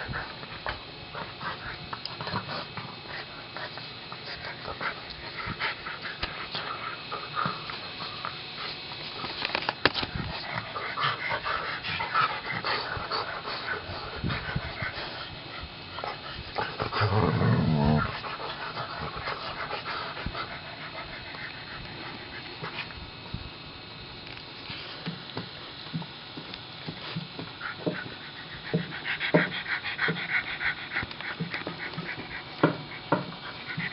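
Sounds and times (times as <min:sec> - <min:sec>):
dogs panting and snuffling: 0:00.0 - 0:23.6, 0:24.2 - 0:33.9
dog growling: 0:16.4 - 0:21.8.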